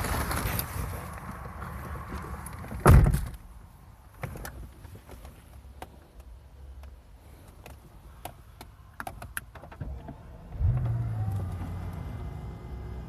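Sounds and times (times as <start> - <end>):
car engine starting and idling: 8.8 - 13.0.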